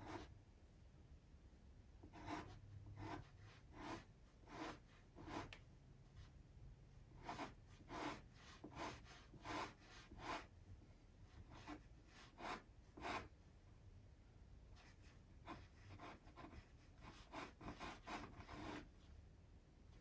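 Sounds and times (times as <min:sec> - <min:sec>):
pastel stick scratching paper: 0:02.0 - 0:05.6, 0:07.1 - 0:10.5, 0:11.3 - 0:13.4, 0:14.8 - 0:19.0.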